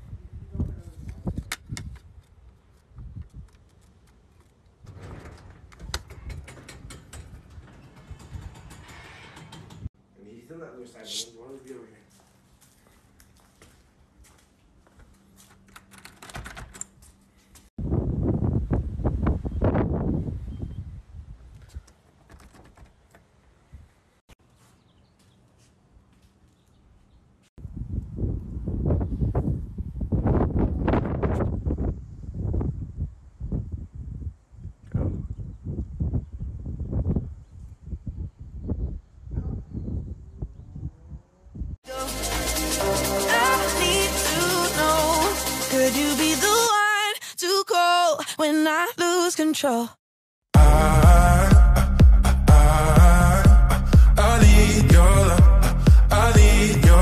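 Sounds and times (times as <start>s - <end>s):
door clicks and knocks: 4.9s - 10.0s, 15.7s - 16.9s
low rumble: 50.6s - 57.0s.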